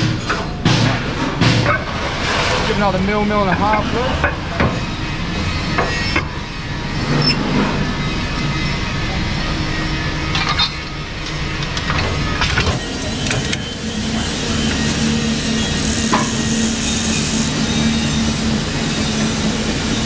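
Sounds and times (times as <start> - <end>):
plate rolling machine running: 0.0 - 20.0
sharp metal knocks: 0.6 - 2.8.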